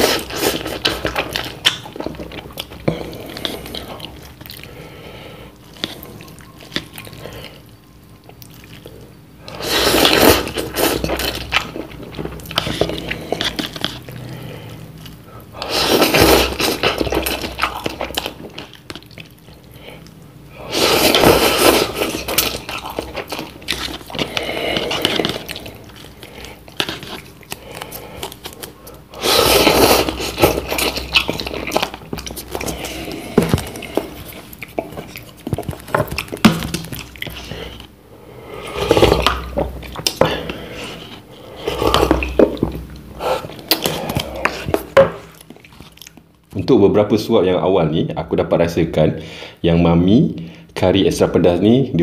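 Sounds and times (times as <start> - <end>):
chewing: 0.0 - 4.8, 5.5 - 38.0, 38.6 - 46.5
noodle slurping: 8.9 - 14.5, 15.6 - 18.7, 20.5 - 46.0.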